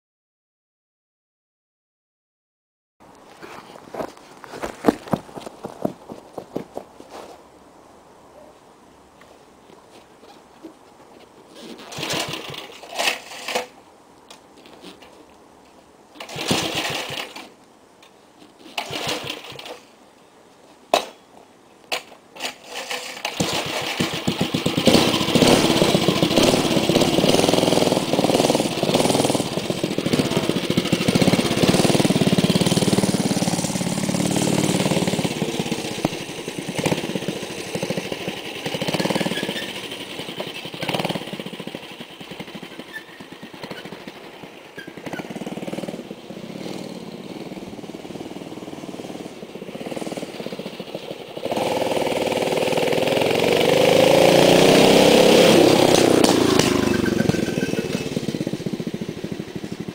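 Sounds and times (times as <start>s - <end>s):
small engine sputtering and running: 11.9s - 13.7s, 16.2s - 17.5s, 22.4s - 59.9s.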